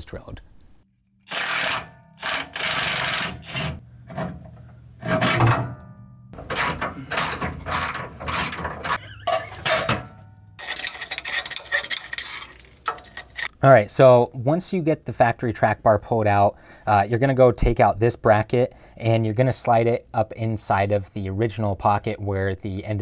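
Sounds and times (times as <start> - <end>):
impact wrench bursts: 1.3 - 3.8, 6.4 - 9.9
metal clattering and scraping: 1.3 - 13.6.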